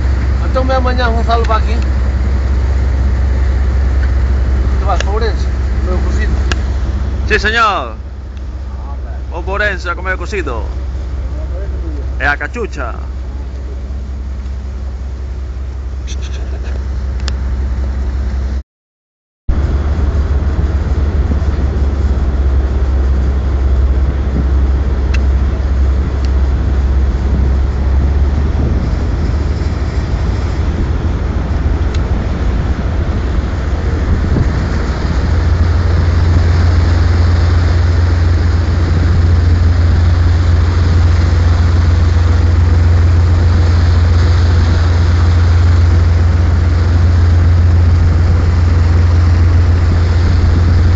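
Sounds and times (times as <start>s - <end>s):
diesel engine droning: 0.0s - 18.6s, 19.5s - 50.9s
water and wind noise: 0.0s - 18.6s, 19.5s - 50.9s.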